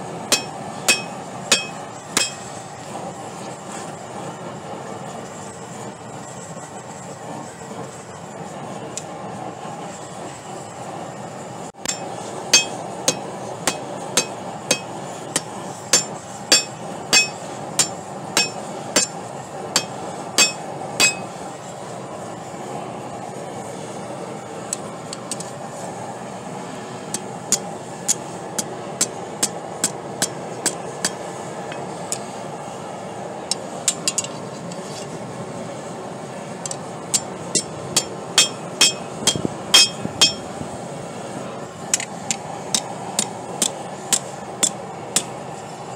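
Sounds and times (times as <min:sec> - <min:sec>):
gas forge rushing: 0:00.0 - 0:45.9
hammer striking steel on anvil: 0:00.3 - 0:02.6, 0:11.8 - 0:21.3, 0:36.7 - 0:40.5, 0:42.7 - 0:45.3.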